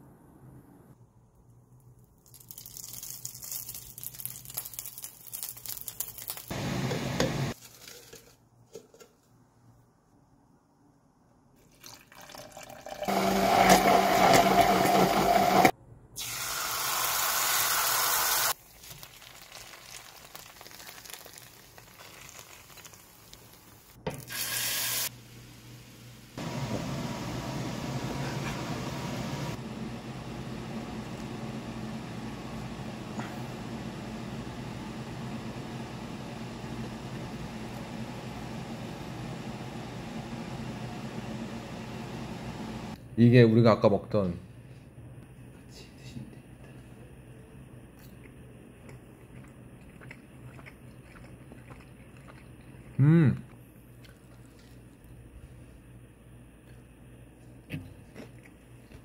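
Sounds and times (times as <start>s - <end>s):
liquid being poured: 2.2s - 6.3s, 11.6s - 13.1s, 49.0s - 53.0s, 53.9s - 55.3s
food frying in a pan: 16.2s - 26.5s.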